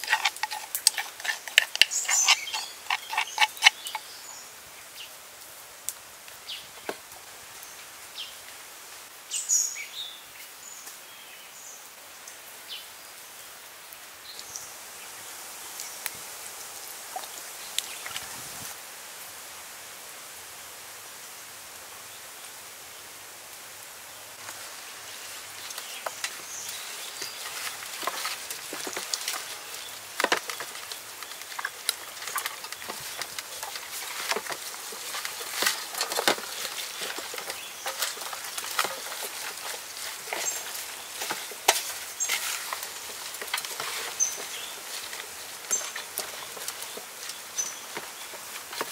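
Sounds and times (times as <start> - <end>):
hands squelching raw meat: 0.0 - 4.0
soft outdoor hiss: 0.0 - 48.9.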